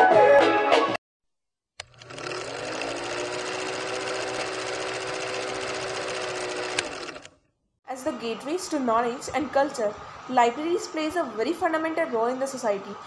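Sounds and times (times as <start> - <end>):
film projector whirring: 1.8 - 7.4.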